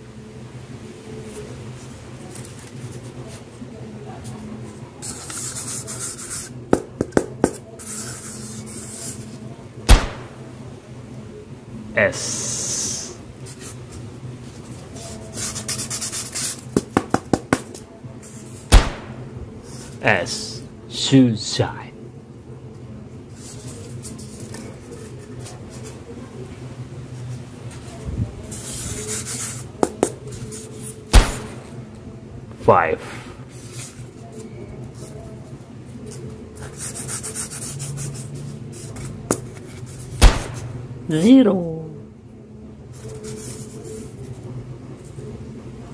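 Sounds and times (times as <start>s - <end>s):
styrofoam scratchy rubbing: 5.0s - 6.6s, 7.7s - 10.5s, 12.9s - 17.0s, 23.4s - 26.1s, 27.3s - 31.8s, 36.0s - 40.8s, 43.0s - 44.4s
loud thump: 9.9s - 10.4s, 18.7s - 19.3s, 31.2s - 31.7s, 40.2s - 40.8s.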